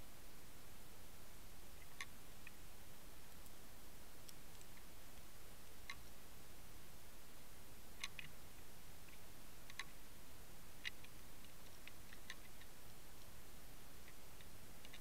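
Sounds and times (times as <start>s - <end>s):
faint steady hiss: 0.0s - 15.0s
sharp irregular clicks underwater: 1.8s - 2.6s, 4.2s - 6.2s, 8.0s - 10.0s, 10.8s - 13.3s, 14.0s - 15.0s.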